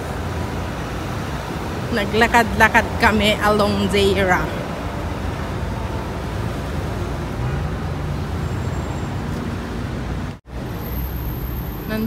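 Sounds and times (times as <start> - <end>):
city road traffic: 0.0 - 12.0.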